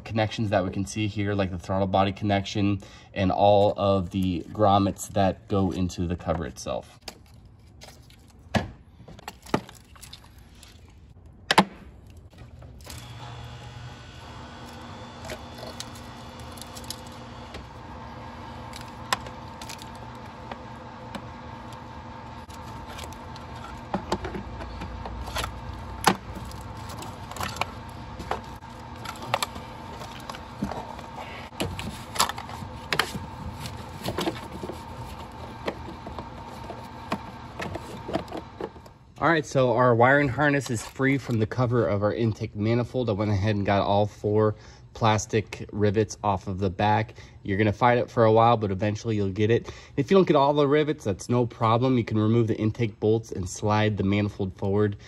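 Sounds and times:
steady hum: 10.2 - 41.0.

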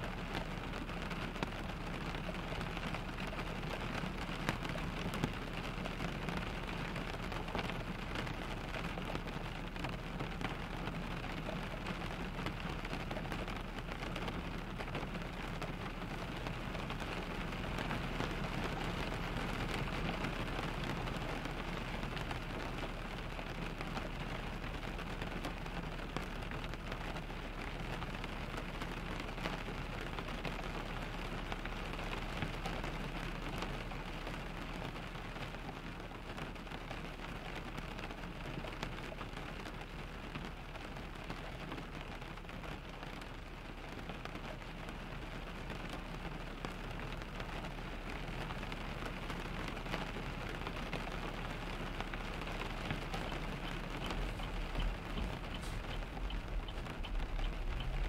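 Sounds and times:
rain on car windshield and roof: 0.0 - 58.0
low rumble: 52.1 - 58.0.

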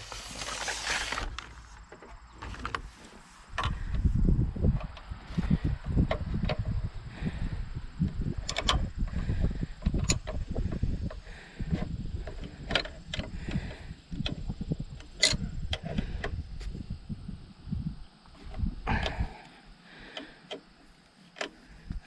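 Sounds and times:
wrenches clicking on metal: 8.1 - 16.4.

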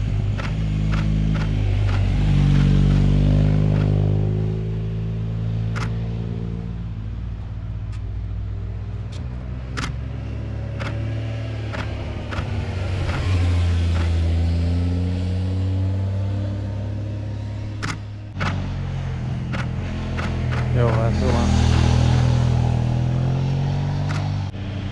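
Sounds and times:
cars passing by: 0.0 - 24.9
sharp clicks: 0.4 - 3.1, 3.7 - 4.0, 5.7 - 6.0, 9.1 - 10.0, 10.8 - 11.0, 11.7 - 14.2, 17.8 - 18.6, 19.5 - 21.0, 24.0 - 24.4.

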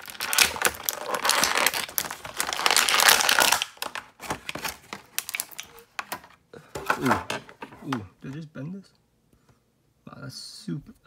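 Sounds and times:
plastic blister tray crinkling: 0.0 - 7.4.

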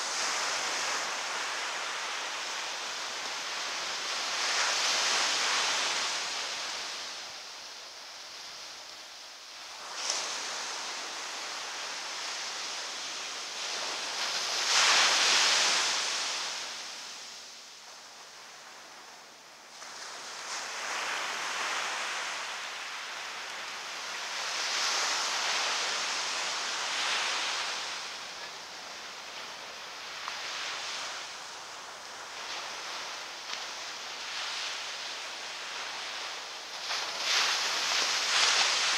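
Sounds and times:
ocean surf breaking: 20.0 - 38.9.

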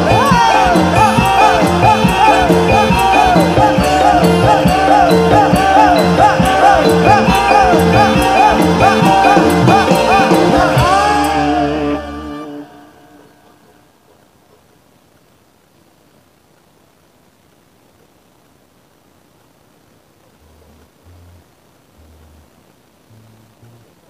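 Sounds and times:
ensemble music with percussion: 0.0 - 12.4.

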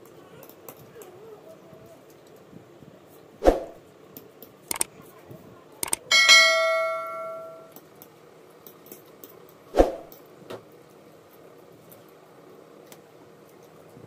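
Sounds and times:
bell chime: 6.1 - 7.7.

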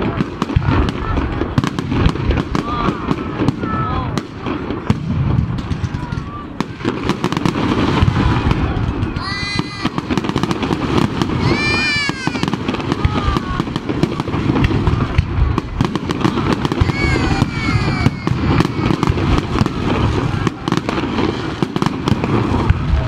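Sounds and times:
firework bangs and crackling: 0.0 - 23.0
high falling calls: 9.2 - 13.8.

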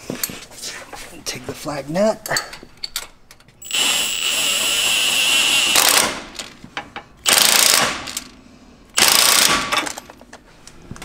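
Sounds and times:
impact wrench whining and hammering: 3.6 - 8.4, 9.0 - 10.3.

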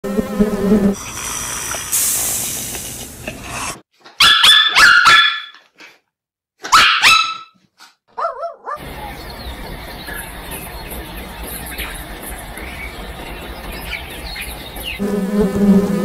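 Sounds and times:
honeybees buzzing: 0.0 - 1.2, 8.8 - 16.0
dog barking: 4.2 - 5.6, 6.6 - 8.9.

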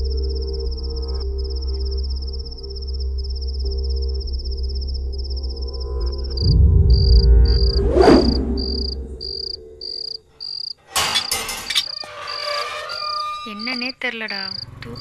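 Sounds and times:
low music drone: 0.0 - 10.0
crickets chirping: 0.0 - 15.0
swish sweeping: 6.4 - 9.8.

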